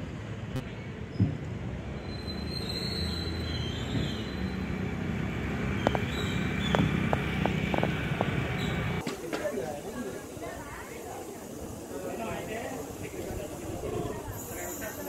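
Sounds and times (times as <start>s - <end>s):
vehicle engines rumbling: 0.0s - 9.0s.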